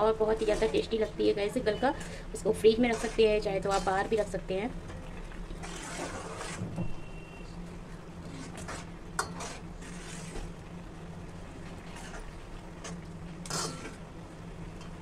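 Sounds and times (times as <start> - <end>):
mixture bubbling: 0.0 - 15.0
ladle scraping metal pan: 0.3 - 4.3, 5.6 - 7.1, 8.2 - 10.5.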